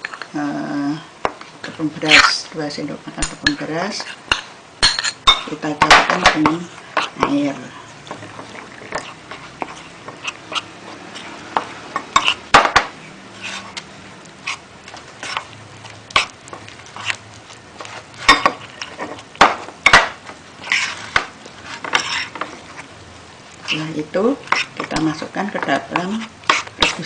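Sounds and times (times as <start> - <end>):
metal spoon scraping a bowl: 12.1 - 12.4, 20.6 - 22.5.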